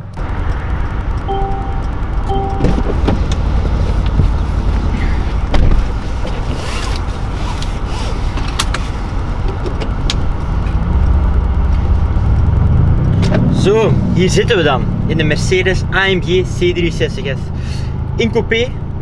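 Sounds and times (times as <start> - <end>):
car engine low drone: 0.0 - 19.0
short chime: 1.3 - 2.8.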